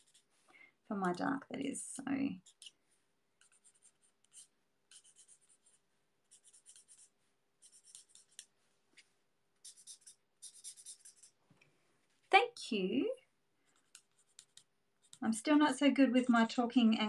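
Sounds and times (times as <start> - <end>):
marker scratching on paper: 0.0 - 0.3, 2.4 - 2.8, 3.4 - 8.5, 9.6 - 11.4, 13.7 - 15.6.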